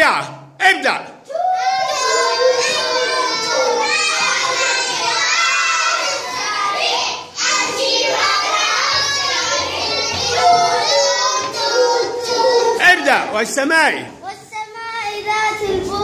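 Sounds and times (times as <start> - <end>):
children singing in chorus: 1.3 - 12.8.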